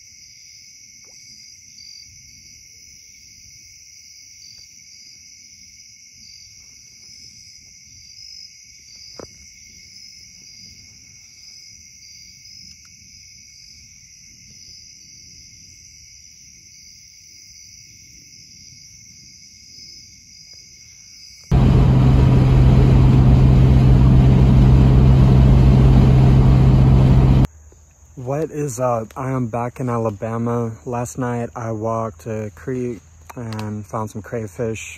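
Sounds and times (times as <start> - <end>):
crickets and insects trilling: 0.0 - 34.9
car road noise: 21.5 - 27.5.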